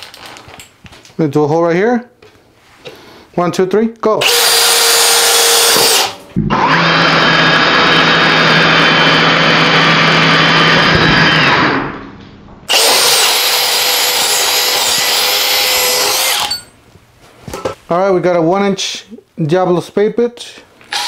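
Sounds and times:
power drills boring into wood: 4.2s - 11.8s, 12.7s - 16.6s.

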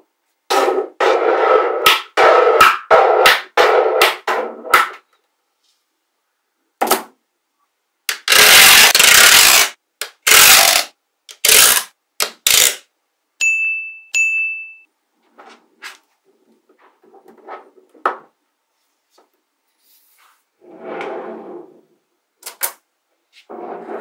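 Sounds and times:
magnetic balls ringing pings: 13.4s - 14.9s.

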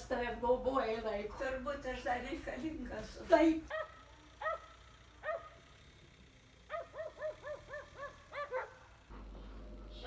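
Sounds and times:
dogs barking: 3.7s - 5.7s, 6.7s - 9.0s.

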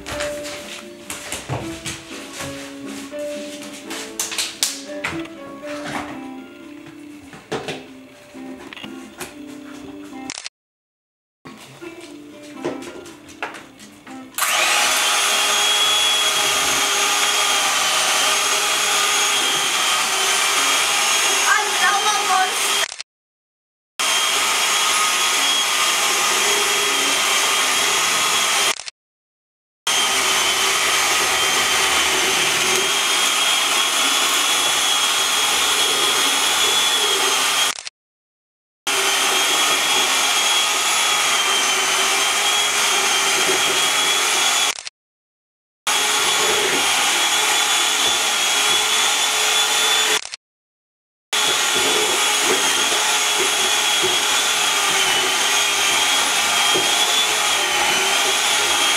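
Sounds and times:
electric mixer motor whine: 14.4s - 23.0s, 24.0s - 28.9s, 29.9s - 37.9s, 38.9s - 44.9s, 45.9s - 50.4s, 51.4s - 58.9s.

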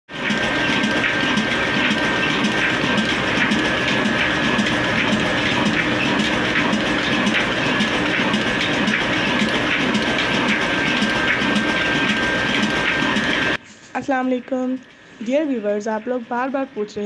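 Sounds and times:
diesel engine running: 0.1s - 13.6s.

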